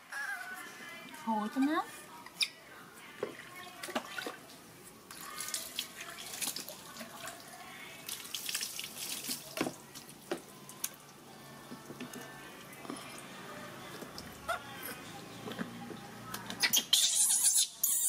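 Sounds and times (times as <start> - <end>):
water splashing and dripping: 3.7 - 11.2.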